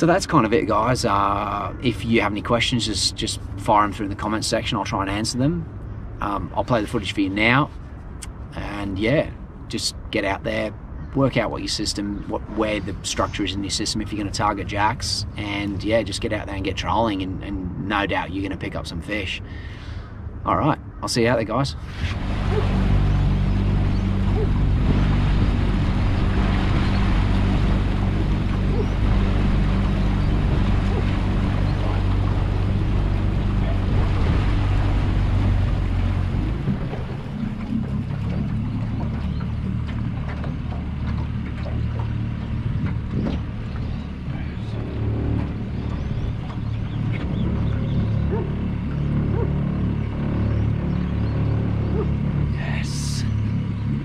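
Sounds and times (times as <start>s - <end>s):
water rushing past hull: 21.7s - 54.0s
outboard motor running: 21.8s - 54.0s.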